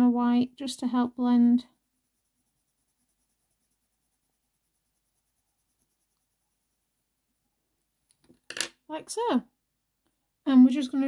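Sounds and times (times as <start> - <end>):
pencil scratching on paper: 0.9 - 7.4.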